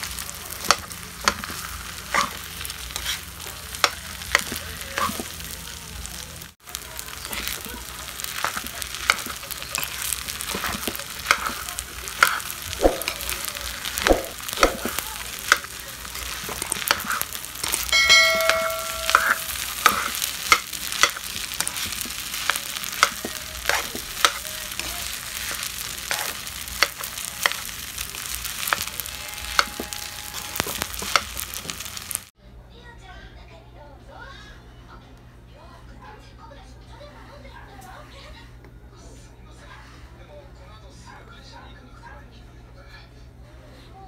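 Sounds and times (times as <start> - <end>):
rice sizzling in a pan: 0.0 - 32.4
metal spoon scraping a pan: 0.6 - 5.4, 8.3 - 31.8.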